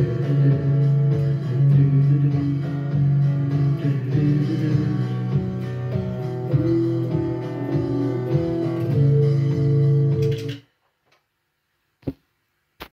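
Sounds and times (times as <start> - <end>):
electric guitar playing: 0.0 - 10.6.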